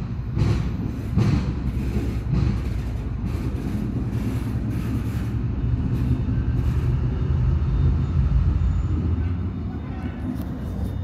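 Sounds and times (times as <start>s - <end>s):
diesel locomotive low drone: 0.0s - 11.0s.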